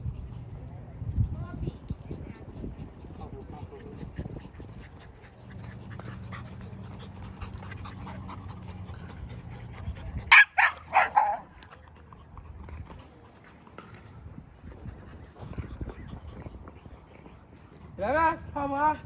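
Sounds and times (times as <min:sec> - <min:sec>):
dog barking: 0:10.3 - 0:11.5.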